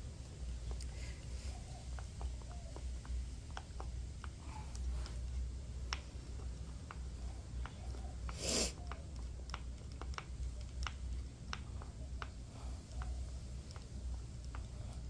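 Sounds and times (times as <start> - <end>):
low steady hum: 0.0 - 15.0
short breathy hiss: 8.3 - 8.8.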